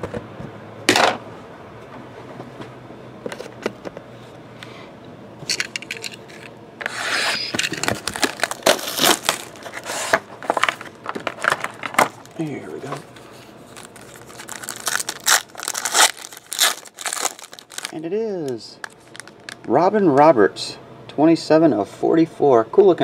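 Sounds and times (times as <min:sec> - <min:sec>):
plastic shrink-wrap crinkling: 0:07.6 - 0:18.0, 0:18.8 - 0:19.7.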